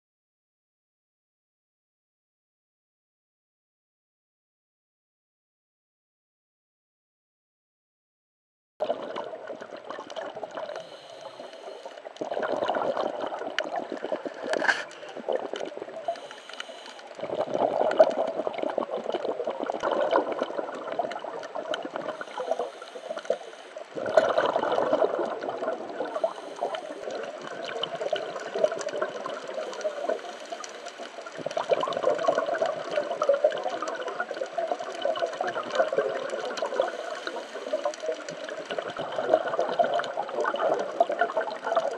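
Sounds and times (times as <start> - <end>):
underwater regulator breathing bubbles: 8.8 - 41.9.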